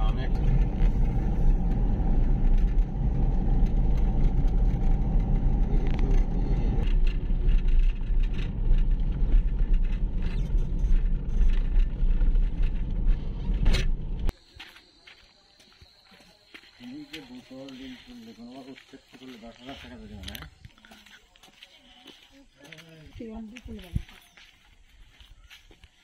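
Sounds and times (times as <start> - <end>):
vehicle engine and road rumble: 0.0 - 14.4.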